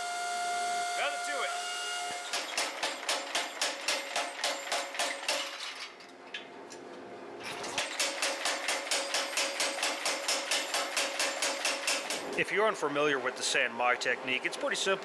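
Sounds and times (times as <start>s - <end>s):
power hammer striking iron: 2.2s - 5.6s, 7.8s - 12.4s.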